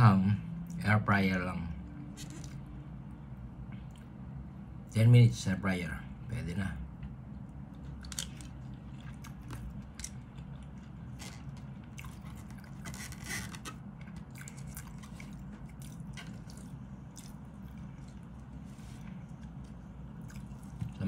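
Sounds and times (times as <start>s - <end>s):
steady low hum: 0.0s - 21.0s
person chewing: 7.4s - 21.0s.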